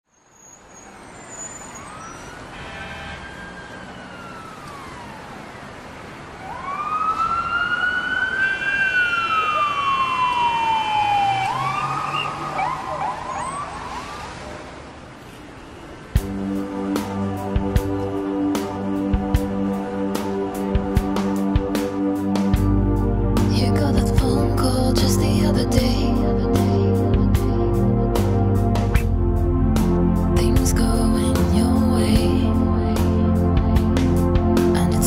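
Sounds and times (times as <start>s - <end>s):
emergency vehicle siren wailing: 0.9s - 14.8s.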